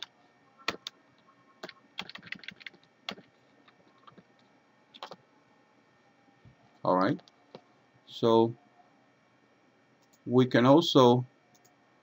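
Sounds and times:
computer keyboard typing: 0.7s - 0.9s, 1.6s - 3.4s, 5.0s - 5.2s.

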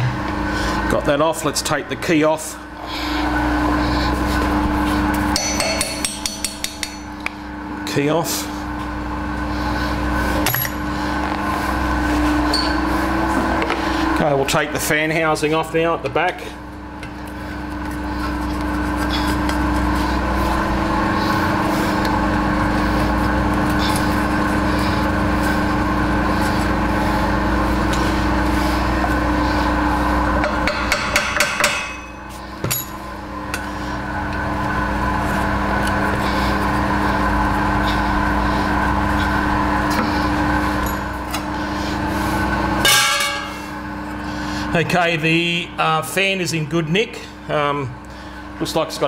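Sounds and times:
rotary phase converter humming: 0.0s - 49.0s
tool tapping and scraping metal: 5.3s - 7.3s, 30.4s - 32.9s.

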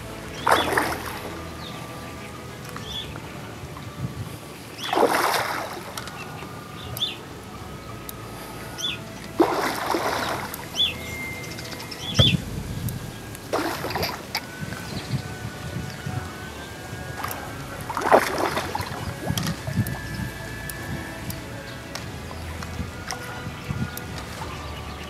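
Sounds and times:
water splashing: 0.0s - 25.0s
high bird chirps: 10.0s - 15.3s.

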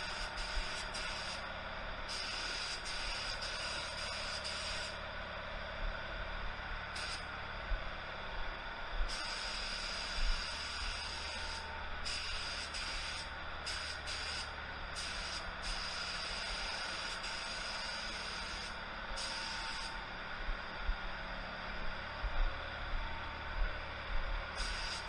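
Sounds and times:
steady low hum: 0.0s - 25.0s
spray gun hissing: 9.1s - 19.9s, 24.6s - 25.0s.

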